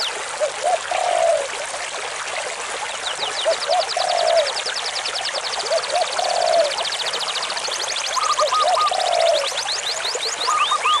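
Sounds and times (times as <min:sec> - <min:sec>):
stream rushing over rocks: 0:00.0 - 0:11.0
birds calling: 0:08.0 - 0:11.0.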